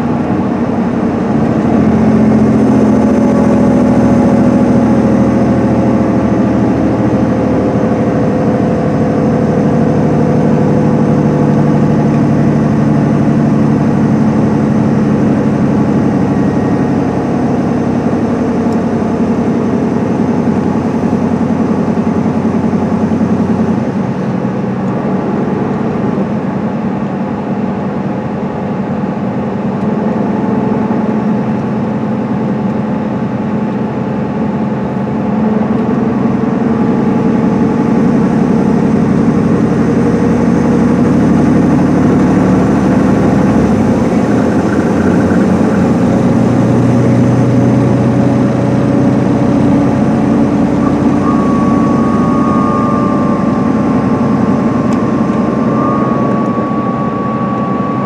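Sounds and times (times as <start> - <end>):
coach diesel engine drone: 0.0 - 58.0
road noise: 0.0 - 58.0.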